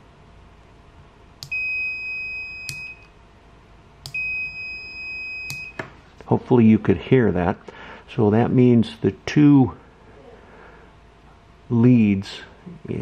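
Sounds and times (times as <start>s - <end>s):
multimeter continuity beep: 1.4s - 3.2s, 4.1s - 5.8s
rocker switch click: 2.7s - 3.0s.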